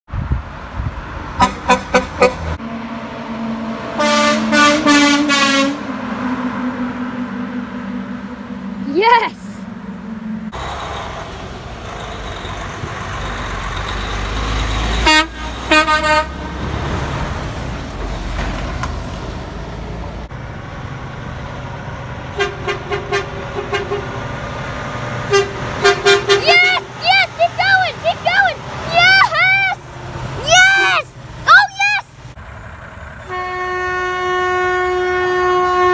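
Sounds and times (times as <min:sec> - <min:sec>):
air horn blasts: 0:01.4 - 0:02.6, 0:04.0 - 0:05.9, 0:15.0 - 0:16.5, 0:22.4 - 0:24.1, 0:25.3 - 0:26.9, 0:33.2 - 0:35.9
truck horn honks: 0:01.4 - 0:02.6, 0:04.0 - 0:06.0, 0:15.0 - 0:16.6, 0:22.3 - 0:24.2, 0:25.3 - 0:27.3, 0:33.2 - 0:35.9
truck engine running: 0:09.7 - 0:34.3.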